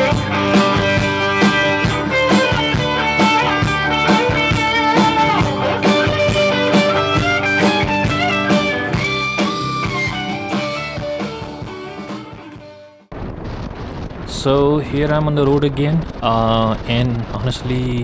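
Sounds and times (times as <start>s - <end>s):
rock band playing live: 0.0s - 12.9s
electric guitar lead with bends: 0.0s - 13.0s.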